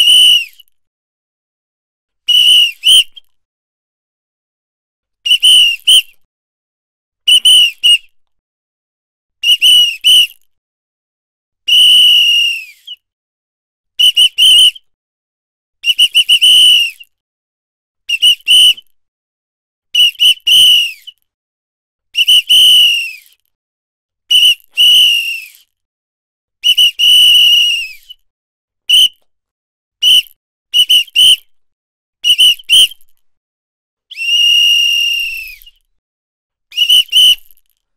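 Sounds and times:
pea whistle blasts: 0.0 - 0.6, 2.3 - 3.3, 5.2 - 6.2, 7.3 - 8.1, 9.4 - 10.4, 11.7 - 13.0, 14.0 - 14.8, 15.8 - 17.1, 18.1 - 18.9, 20.0 - 21.2, 22.2 - 23.4, 24.3 - 25.8, 26.6 - 28.2, 28.9 - 29.2, 30.0 - 31.5, 32.2 - 33.1, 34.1 - 35.8, 36.7 - 37.6.

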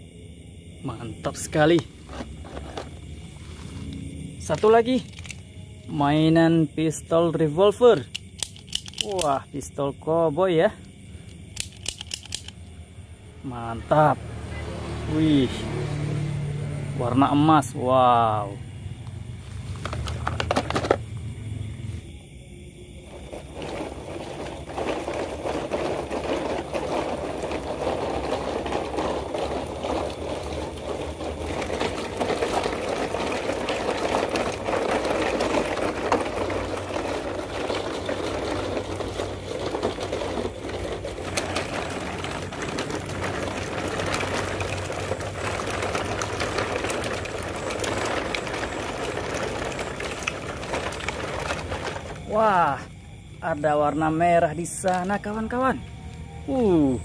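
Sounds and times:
toy trucks rolling over pebbles: 0.8 - 22.2, 22.9 - 57.0.

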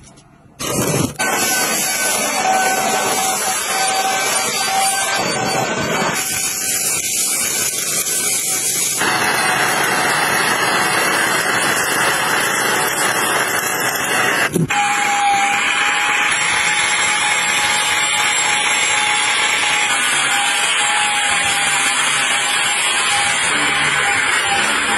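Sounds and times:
vacuum cleaner suction hiss: 0.6 - 5.3.

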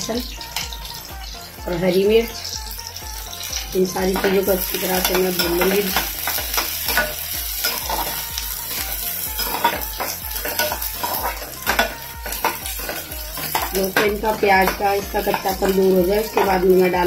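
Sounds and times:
onions sizzling in hot oil: 0.0 - 17.0
ladle scraping metal pan: 9.4 - 16.6.

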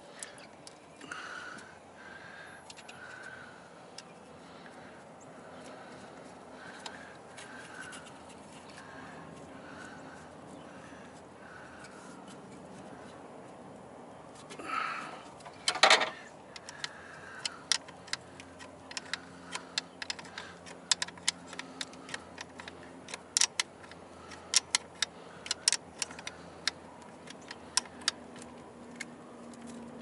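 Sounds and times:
hand tools clicking and clinking: 14.4 - 29.9.

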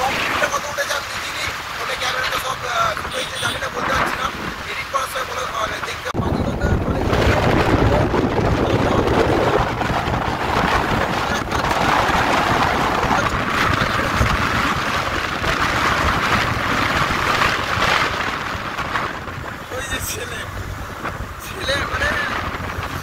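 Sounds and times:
wind over microphone: 0.0 - 23.0
motorbike engine and tyre rumble: 6.2 - 23.0.

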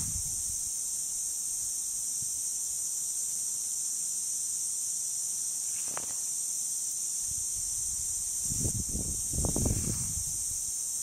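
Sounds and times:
sprinkler spray hissing: 5.5 - 11.0.

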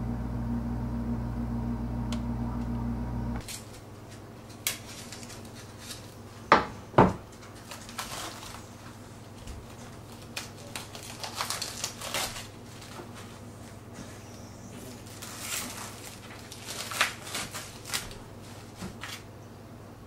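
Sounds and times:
steady low hum: 0.0 - 3.5
plastic wrap crinkling: 3.4 - 6.2, 7.4 - 13.4, 14.9 - 19.3.

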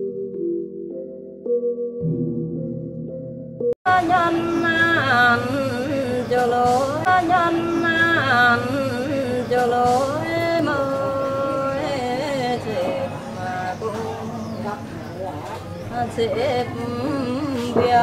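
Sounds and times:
woman singing folk song: 3.9 - 14.9, 15.8 - 18.0.

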